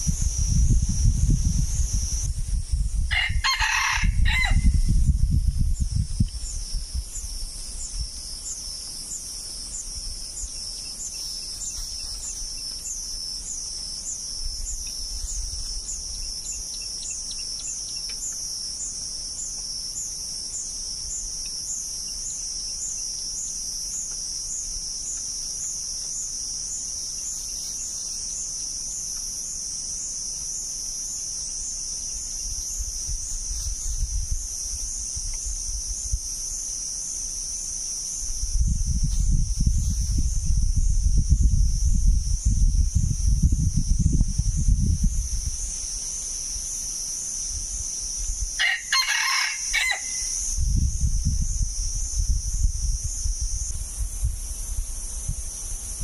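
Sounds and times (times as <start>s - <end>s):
high-pitched insect chorus: 0.0s - 56.0s
rooster crowing: 3.1s - 4.9s, 48.6s - 50.4s.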